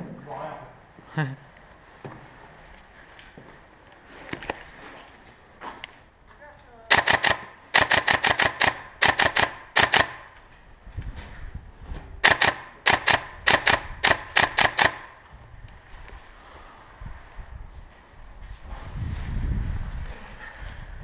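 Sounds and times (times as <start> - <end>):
airsoft rifle firing in bursts: 6.9 - 10.4, 12.2 - 15.2.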